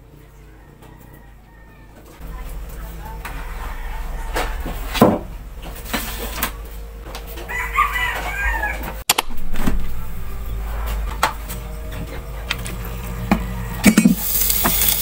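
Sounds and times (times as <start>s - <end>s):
rooster crowing: 0.4s - 2.2s, 2.8s - 5.4s, 7.3s - 9.0s, 12.8s - 14.4s.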